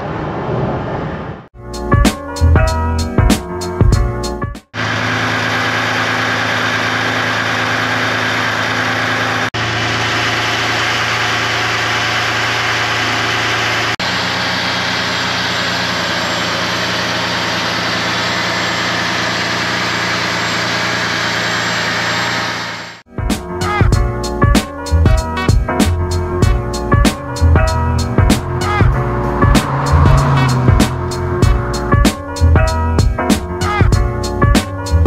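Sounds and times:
car engine idling: 4.8s - 23.0s, 26.2s - 32.9s.

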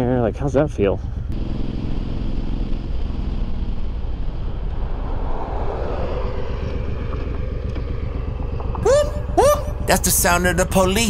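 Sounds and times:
motorcycle engine running: 0.0s - 4.8s
wind rushing over microphone: 4.2s - 10.0s.

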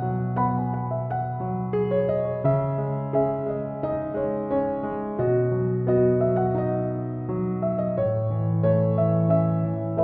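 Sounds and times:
gentle keyboard melody: 0.0s - 10.0s.

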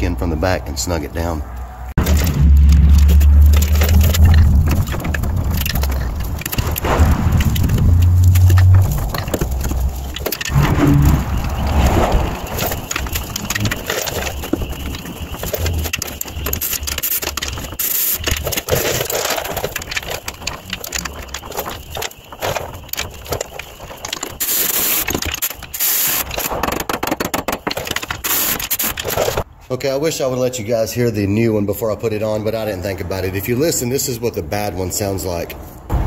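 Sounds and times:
metal clinks and knocks: 2.0s - 11.8s, 12.4s - 26.4s.

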